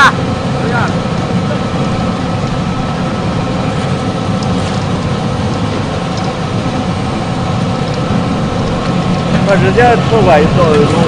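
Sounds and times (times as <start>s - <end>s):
constant hum: 0.0s - 11.0s.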